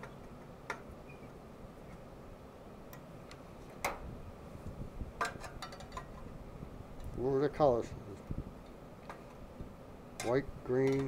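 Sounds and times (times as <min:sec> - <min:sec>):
clicks and taps of small parts: 0:10.2 - 0:11.0.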